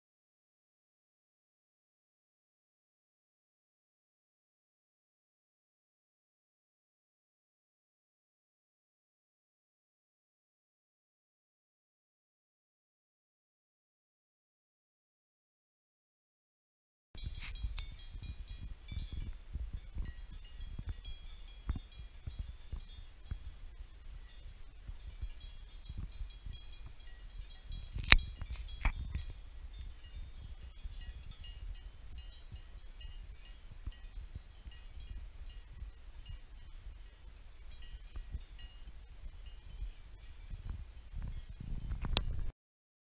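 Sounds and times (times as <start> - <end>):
distant cowbells clinking: 17.2 - 41.7
wind rumble on microphone: 17.2 - 42.5.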